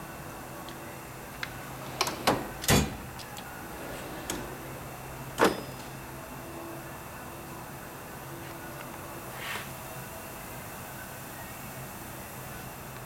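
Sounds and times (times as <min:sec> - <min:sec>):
drawers thumping shut: 0:01.4 - 0:06.0
metal drawers clicking and knocking: 0:01.4 - 0:06.1.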